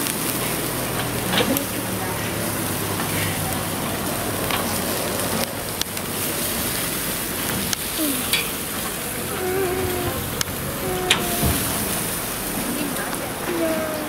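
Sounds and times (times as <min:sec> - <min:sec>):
ribs sizzling on a grill: 0:00.0 - 0:14.0
metal tongs clicking on grate: 0:07.7 - 0:08.6.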